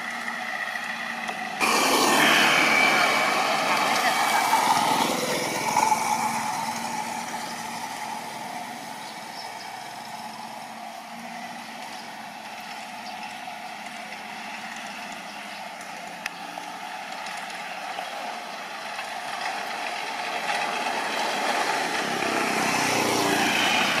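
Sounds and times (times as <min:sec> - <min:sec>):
vehicle approaching: 0:00.0 - 0:24.0.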